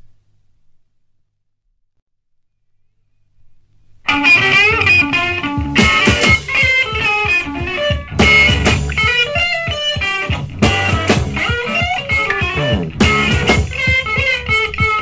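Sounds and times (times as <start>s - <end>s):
drums: 4.1s - 15.0s
electric guitars playing: 4.1s - 15.0s.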